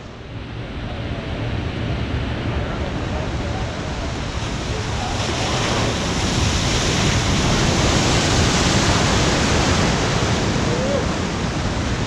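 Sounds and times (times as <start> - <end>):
wave breaking and rushing water: 0.0 - 12.0.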